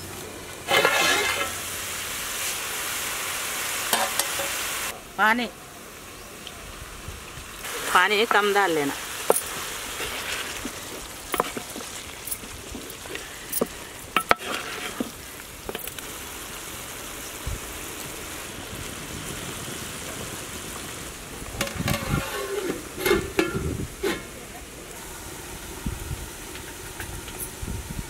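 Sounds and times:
curry simmering and bubbling: 7.6 - 25.7.

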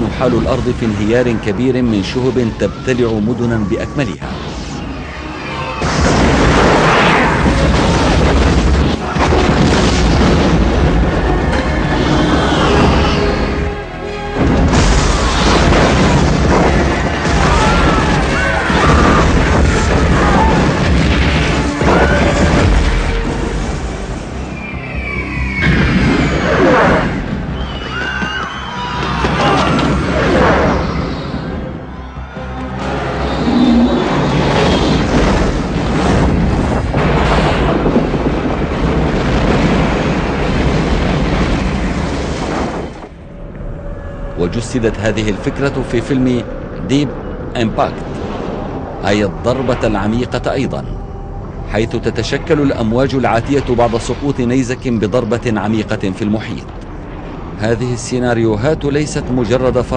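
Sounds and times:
dramatic film music: 0.0 - 59.9
explosions booming: 5.6 - 24.6, 25.5 - 27.6, 32.8 - 43.4
debris falling: 5.8 - 13.6, 14.3 - 24.4, 34.0 - 43.2.

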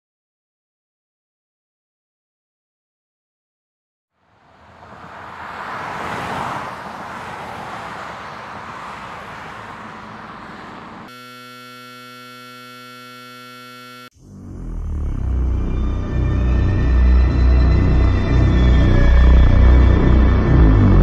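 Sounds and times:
electrical buzz: 10.3 - 15.6.

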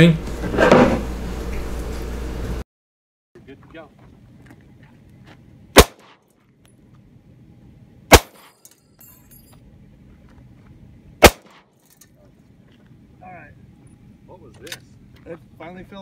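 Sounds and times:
gunshots with echo: 5.8 - 6.2, 8.1 - 8.5, 11.2 - 11.6.

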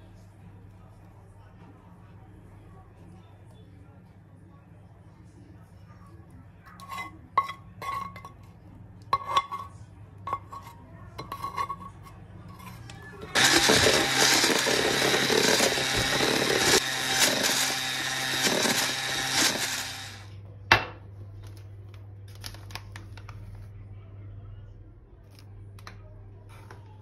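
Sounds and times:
electric hand mixer running: 13.3 - 20.3.

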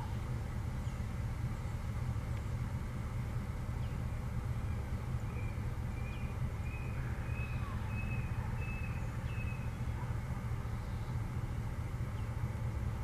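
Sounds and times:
diesel locomotive engine rumbling: 0.0 - 13.0
bird chirping: 4.6 - 11.1.

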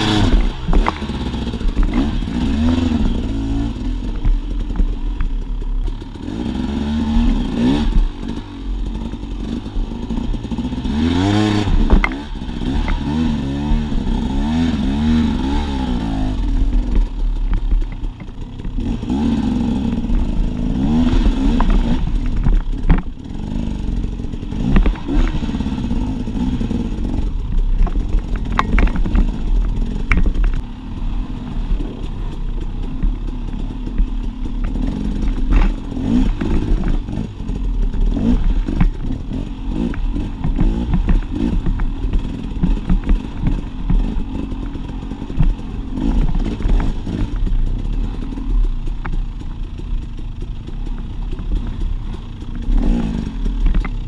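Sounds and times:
dirt bike engine revving: 0.0 - 54.0
bike clattering over rocks: 27.6 - 30.6.

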